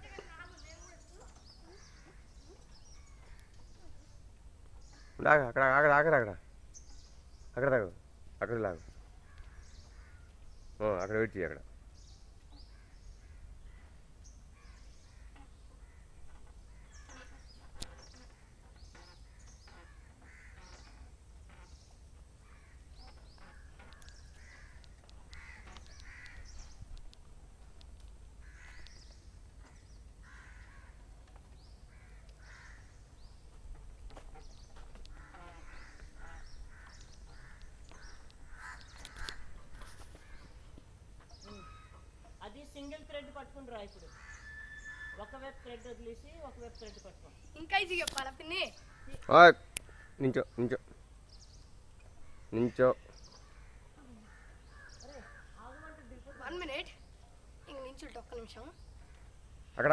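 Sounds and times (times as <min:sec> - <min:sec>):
birds cawing: 0:00.0 - 0:04.2, 0:04.8 - 0:06.1, 0:08.8 - 0:10.4, 0:12.5 - 0:21.8, 0:22.4 - 0:26.8, 0:28.4 - 0:33.2, 0:34.2 - 0:42.5, 0:43.7 - 0:47.0, 0:48.4 - 0:50.7, 0:52.0 - 0:59.4
birds chirping: 0:00.0 - 0:59.9.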